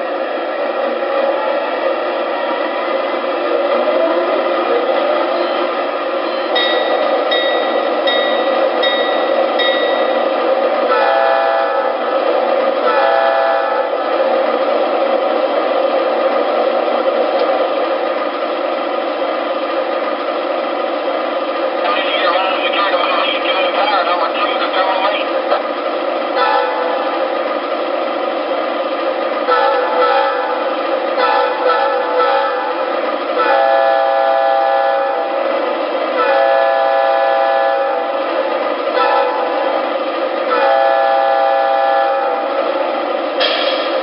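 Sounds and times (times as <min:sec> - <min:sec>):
diesel engine sound: 0:00.0 - 0:44.0
model train horn blasts: 0:10.9 - 0:12.0, 0:12.8 - 0:14.0, 0:26.4 - 0:26.9, 0:29.5 - 0:30.6, 0:31.2 - 0:32.8, 0:33.4 - 0:35.4, 0:36.2 - 0:38.1, 0:39.0 - 0:39.6, 0:40.5 - 0:42.5
recorded diesel engine idling: 0:17.8 - 0:26.2.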